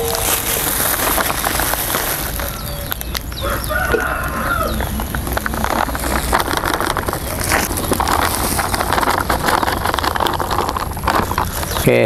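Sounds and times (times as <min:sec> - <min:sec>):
rooster crowing: 0:00.0 - 0:00.8, 0:02.4 - 0:05.9
low background hum: 0:00.0 - 0:12.0.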